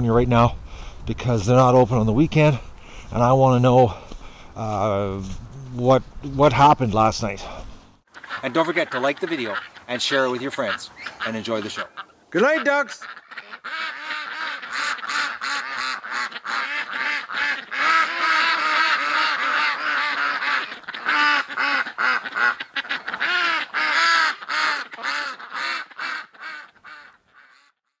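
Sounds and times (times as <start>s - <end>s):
ducks and geese quacking and honking: 8.1s - 27.8s.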